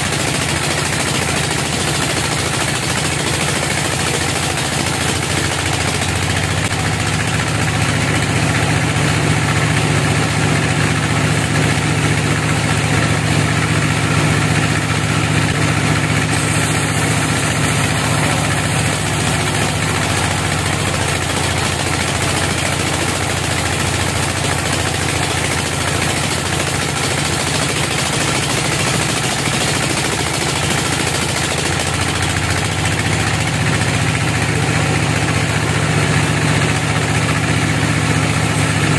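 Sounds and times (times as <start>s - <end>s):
band saw ripping through log: 16.3s - 23.4s.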